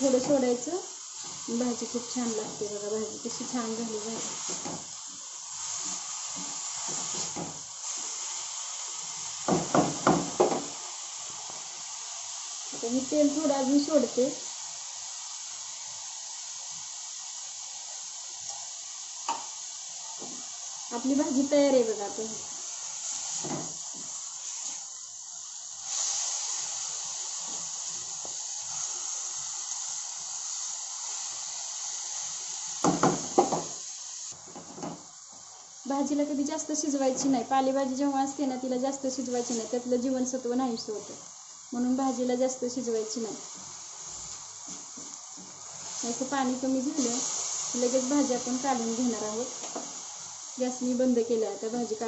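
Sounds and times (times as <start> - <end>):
greens frying hiss: 0.0 - 52.0
wooden spatula knocking on iron pan: 9.5 - 10.7.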